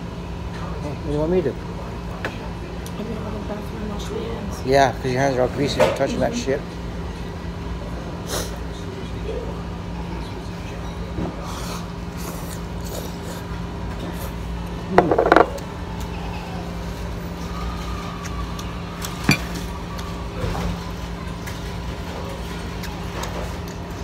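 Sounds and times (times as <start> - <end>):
restaurant low hum: 0.0 - 24.0
tableware clink: 15.0 - 15.6.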